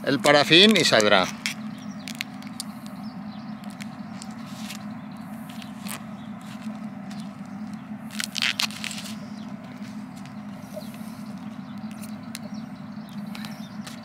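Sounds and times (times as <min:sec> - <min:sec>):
steady low hum: 0:00.0 - 0:14.0
plastic film crackling: 0:00.6 - 0:02.6, 0:03.6 - 0:04.9, 0:05.5 - 0:10.4.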